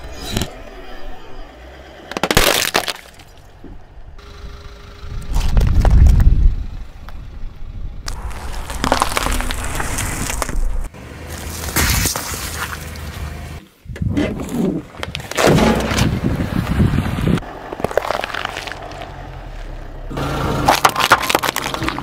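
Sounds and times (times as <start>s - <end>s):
low rumble: 3.2s - 10.9s
something brittle cracking: 8.1s - 10.8s.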